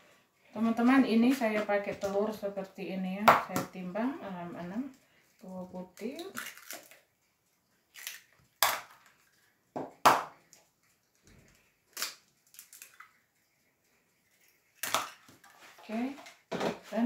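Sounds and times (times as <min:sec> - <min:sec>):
eggshells cracking: 0:05.8 - 0:07.1, 0:07.8 - 0:13.3, 0:14.4 - 0:15.5
small crackles of shell: 0:06.0 - 0:07.1, 0:07.8 - 0:09.6, 0:10.4 - 0:13.4.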